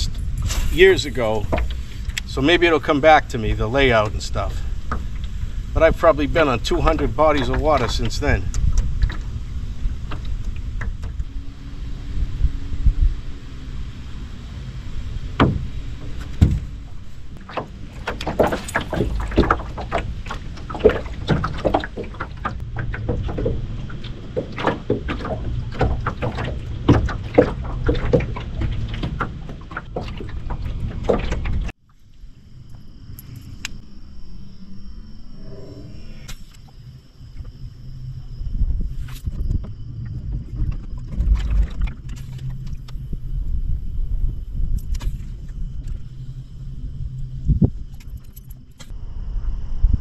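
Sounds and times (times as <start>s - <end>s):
wind rumble on microphone: 0.0s - 50.0s
knocks and slaps on boat hull: 15.4s - 16.7s.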